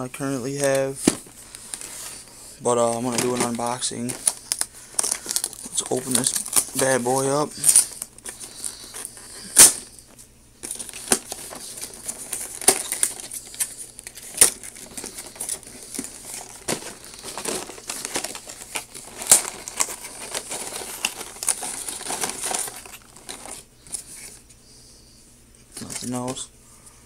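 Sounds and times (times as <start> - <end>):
packaging rustling and crinkling: 0.0 - 24.5
cardboard and plastic snapping: 10.6 - 24.0.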